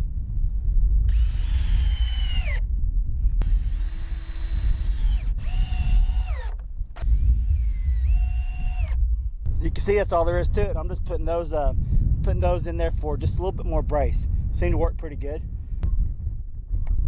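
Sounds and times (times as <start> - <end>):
wind rumble on microphone: 0.0 - 17.0
cordless drill driving screws: 1.1 - 2.6, 3.4 - 9.0.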